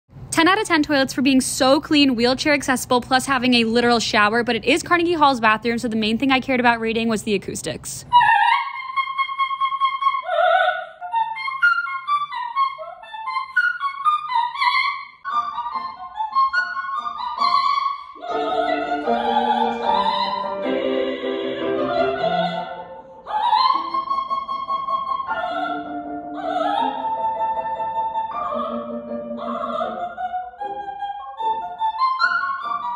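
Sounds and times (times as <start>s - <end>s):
soprano singing opera: 8.1s - 32.9s
piano accompaniment: 15.3s - 32.9s.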